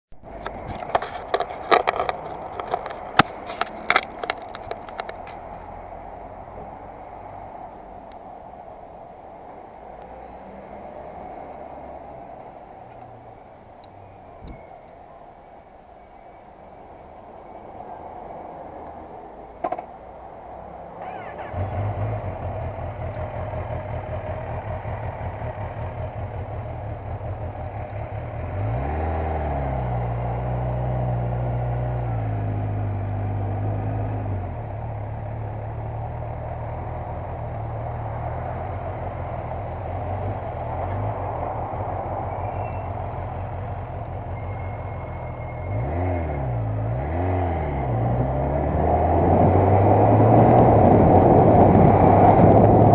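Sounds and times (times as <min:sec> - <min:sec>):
motorcycle engine revving: 0:21.0 - 0:37.6, 0:38.5 - 0:52.9.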